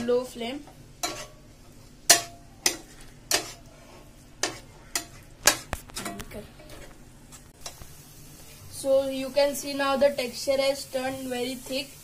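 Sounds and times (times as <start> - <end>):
spatula scraping steel pan: 1.0 - 1.5, 2.1 - 6.9.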